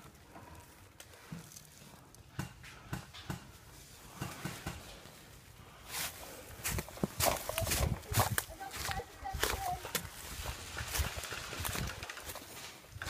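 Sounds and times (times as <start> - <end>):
soft footsteps in dry leaves: 0.0 - 2.2, 3.5 - 13.0
rustling in dry leaf litter: 5.0 - 13.0.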